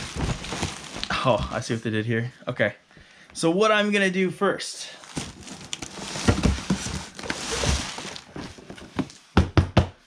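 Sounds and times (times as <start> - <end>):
cardboard box rustling and scraping: 5.1 - 9.0.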